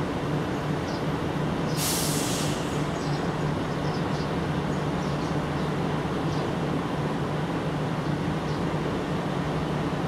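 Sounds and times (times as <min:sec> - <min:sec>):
burst of hiss: 0:01.7 - 0:02.9.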